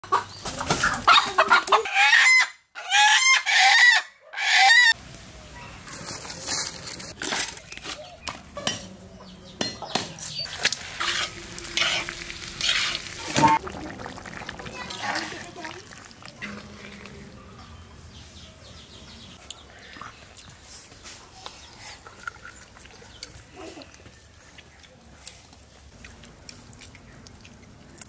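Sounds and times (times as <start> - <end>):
chicken squawking: 0.1 - 5.0
spatula scraping iron pan: 10.6 - 13.6.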